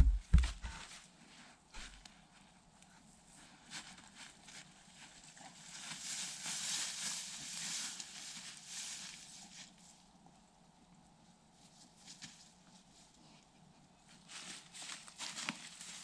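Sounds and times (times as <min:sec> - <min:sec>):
dry grass and leaves rustling: 0:03.3 - 0:10.1, 0:11.5 - 0:13.2, 0:14.0 - 0:16.0.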